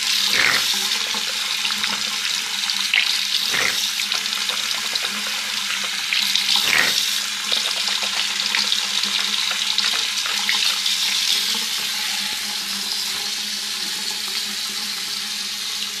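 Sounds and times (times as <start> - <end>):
tap running into sink: 0.0 - 1.3, 3.0 - 5.2, 5.8 - 8.3.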